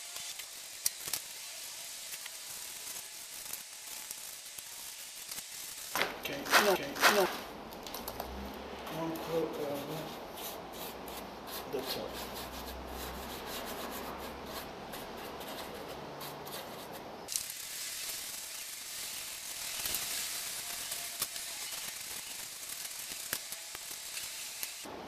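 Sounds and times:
hand rubbing grout on foam: 6.4s - 7.4s, 9.0s - 17.0s
steady high hiss: 17.2s - 25.0s.

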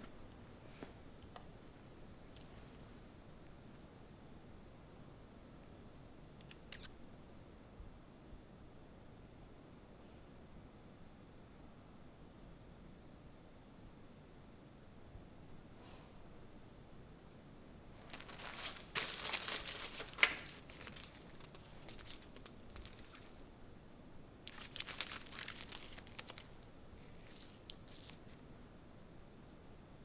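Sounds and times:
paper rustling: 18.0s - 23.4s, 24.5s - 28.4s
paper snap: 18.3s - 23.4s.

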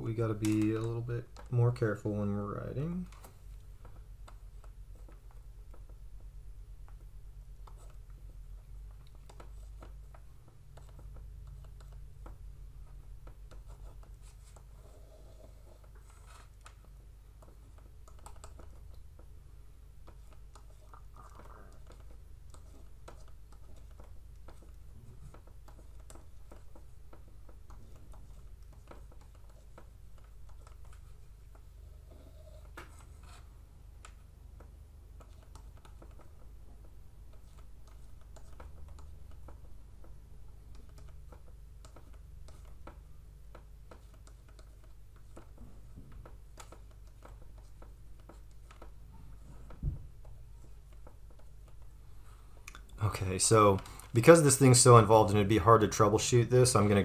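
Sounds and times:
stylus scratching and tapping tablet: 0.0s - 57.0s.

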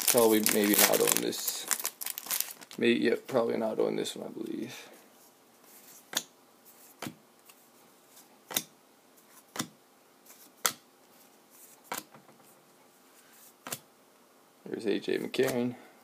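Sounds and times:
cards sliding: 11.6s - 12.2s, 13.2s - 13.8s.

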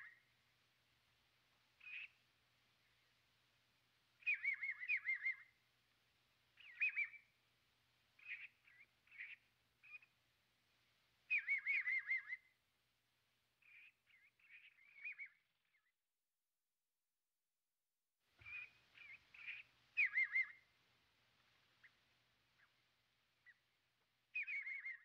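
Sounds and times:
bird singing whistled notes: 1.8s - 2.2s, 4.2s - 5.6s, 6.6s - 7.4s, 8.2s - 10.1s, 11.3s - 12.6s, 13.7s - 16.0s, 18.4s - 20.7s, 24.3s - 25.0s.

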